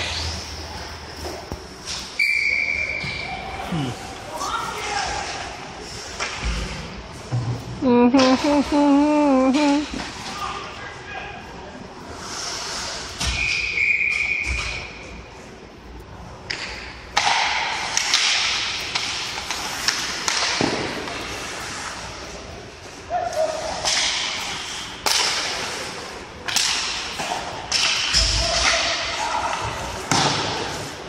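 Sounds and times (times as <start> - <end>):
skate blades scraping ice: 0.0 - 2.2, 12.0 - 13.2, 17.7 - 26.2
hockey sticks and puck knocking: 16.4 - 21.4, 26.4 - 30.8.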